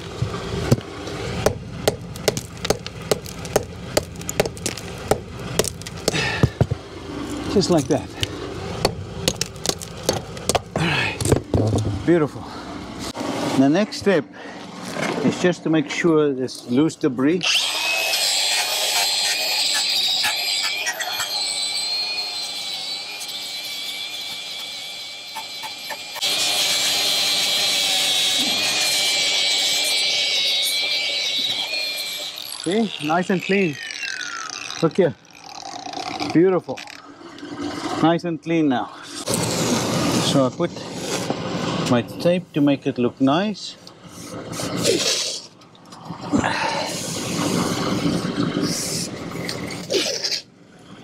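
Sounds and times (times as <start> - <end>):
drill wire brush scrubbing wall: 17.5 - 35.0, 39.2 - 40.4.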